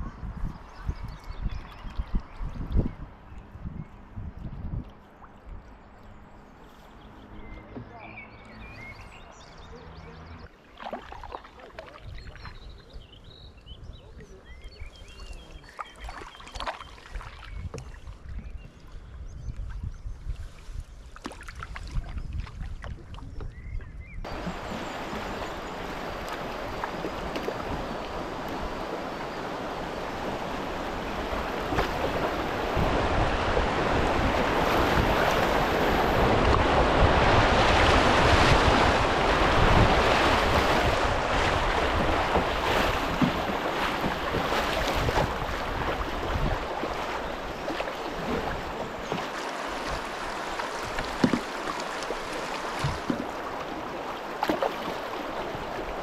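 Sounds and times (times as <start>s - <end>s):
wind buffeting microphone: 0.0s - 6.4s, 17.5s - 54.0s
river rapids rushing: 24.3s - 54.0s.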